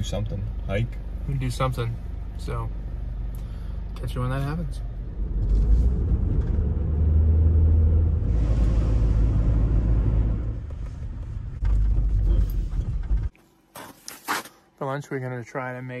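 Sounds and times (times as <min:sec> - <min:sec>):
engine and road noise rumble: 0:00.0 - 0:13.4.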